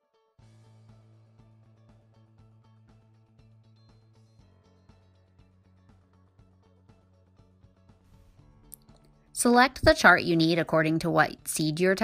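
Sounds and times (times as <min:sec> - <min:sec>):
faint background music with steady beat: 0:00.4 - 0:12.0.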